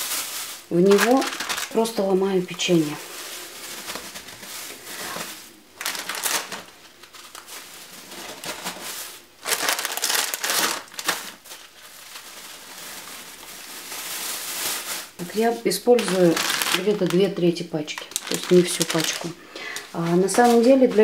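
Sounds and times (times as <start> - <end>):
plastic bag crinkling: 0.0 - 21.0.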